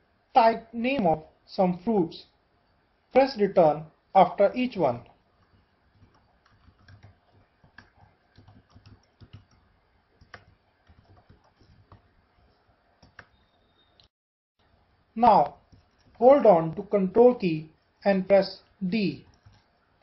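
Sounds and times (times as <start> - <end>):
computer keyboard typing: 5.3 - 13.4, 15.4 - 16.9, 18.6 - 20.0.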